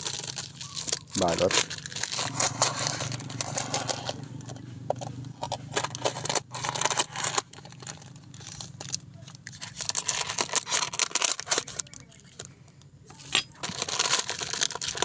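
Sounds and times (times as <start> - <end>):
plastic wrapping being torn: 0.0 - 4.6, 5.4 - 12.4, 13.1 - 15.0
steady low hum: 1.0 - 9.6.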